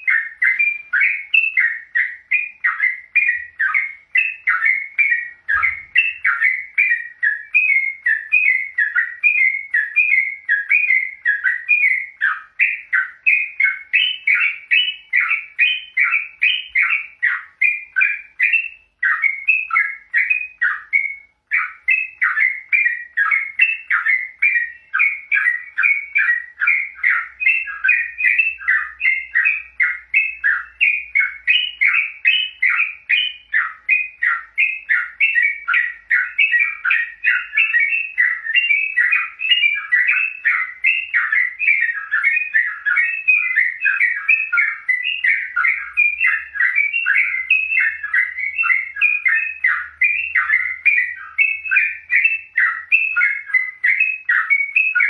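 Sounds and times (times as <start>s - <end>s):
bird chattering call: 0.0s - 21.0s.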